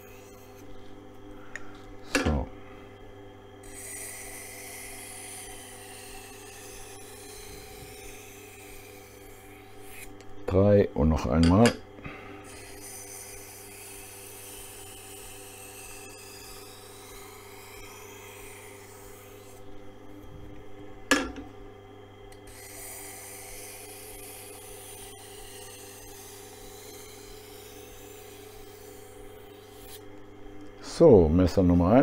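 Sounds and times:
sharpening machine motor humming: 0.0 - 32.0
knife blade scraping on wheel: 3.6 - 10.2, 22.4 - 30.1.

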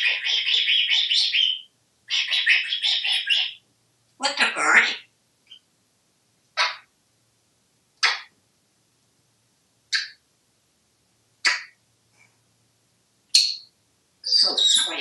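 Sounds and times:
parrot calling: 0.0 - 3.6, 4.2 - 5.6, 14.2 - 15.0.

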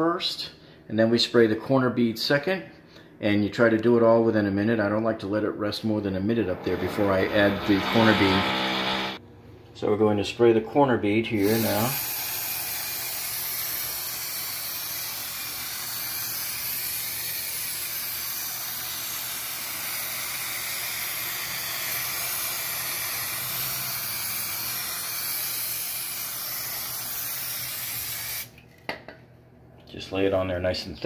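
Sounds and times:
aerosol can spraying hiss: 11.4 - 28.5.

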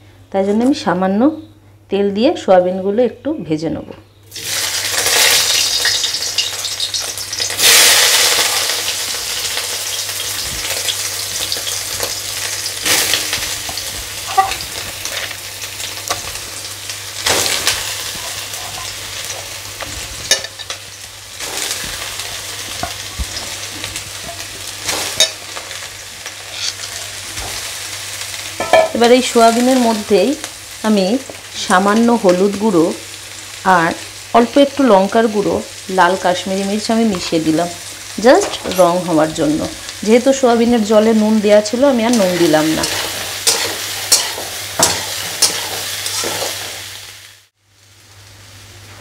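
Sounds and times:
food sizzling in hot oil: 4.3 - 48.9.

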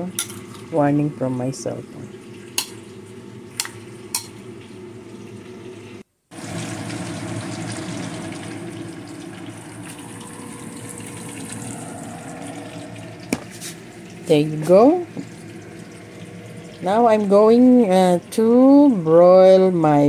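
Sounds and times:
running water: 6.4 - 19.0.

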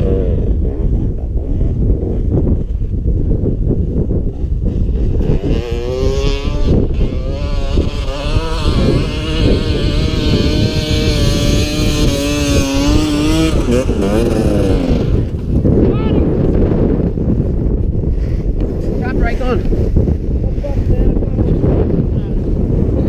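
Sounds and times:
motorcycle engine running: 0.0 - 17.8.

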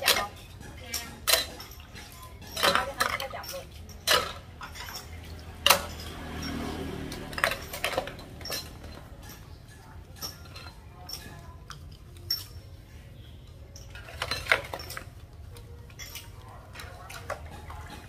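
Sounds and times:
ceramic dishes clinking: 0.0 - 12.7, 13.6 - 15.2.

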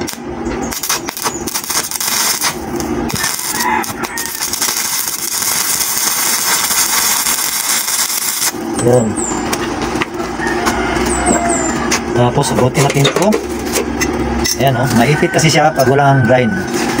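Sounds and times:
welding arc crackling: 0.0 - 10.2.

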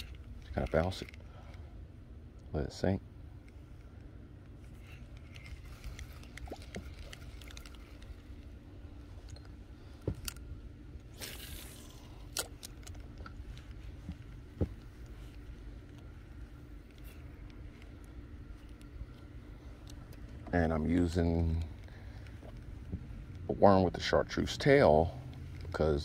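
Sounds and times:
low steady hum: 0.0 - 26.0
fishing tackle clicks and knocks: 4.8 - 8.5, 12.2 - 15.2.

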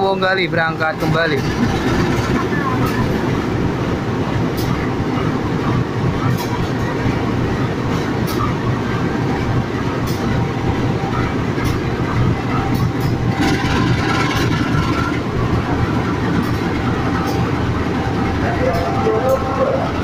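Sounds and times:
locomotive engine drone: 0.0 - 20.0
wheels clicking on track: 0.1 - 3.8, 11.1 - 20.0.

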